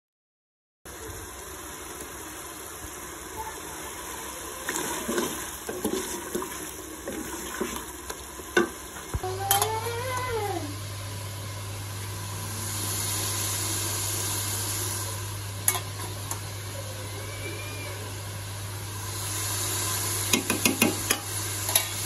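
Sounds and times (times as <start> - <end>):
curry sizzling in a pot: 0.9 - 22.0
wooden spatula scraping: 4.7 - 7.8
knock against metal pot: 20.3 - 21.2.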